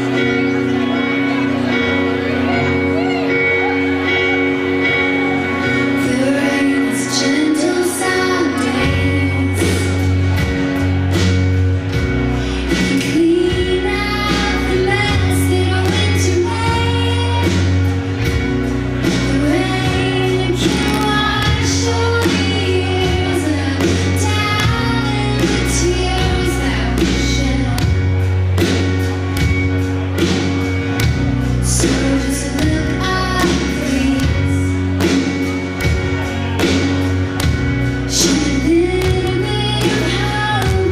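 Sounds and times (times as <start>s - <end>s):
live band playing ballad: 0.0s - 40.9s
woman singing: 5.8s - 10.3s, 12.5s - 17.8s, 19.2s - 28.1s, 31.6s - 34.8s, 38.1s - 40.9s.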